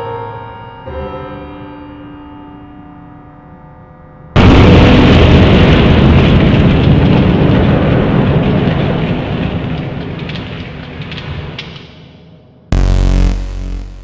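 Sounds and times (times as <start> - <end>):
debris clattering: 4.4 - 12.4.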